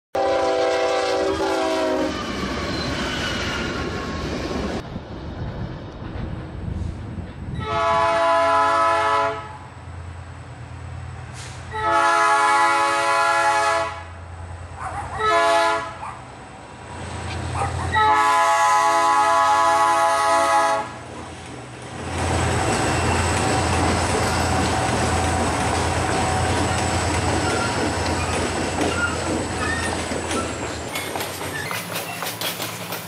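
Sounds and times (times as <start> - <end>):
locomotive air horn blasts: 0.2 - 2.3, 7.6 - 9.7, 11.4 - 14.2, 15.2 - 16.0, 17.9 - 21.0
train rumbling: 0.2 - 33.0.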